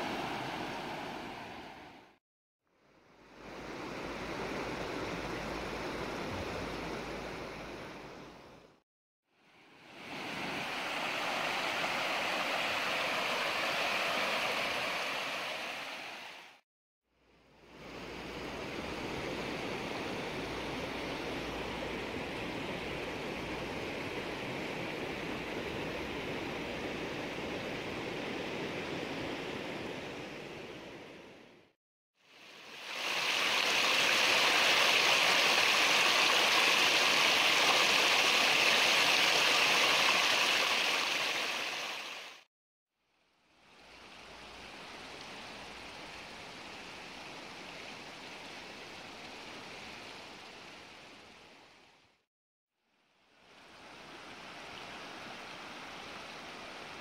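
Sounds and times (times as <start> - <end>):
stream rushing over rocks: 0.0 - 2.0, 9.9 - 16.6, 32.3 - 42.4.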